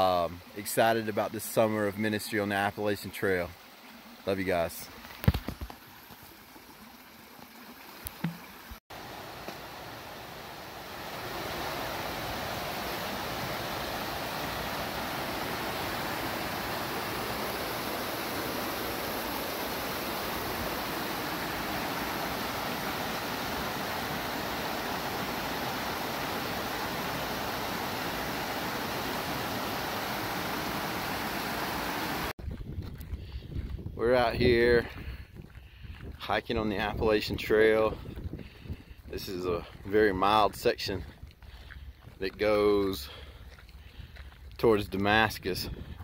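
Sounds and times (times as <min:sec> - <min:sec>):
stream rushing over stones: 0:00.0 - 0:32.3.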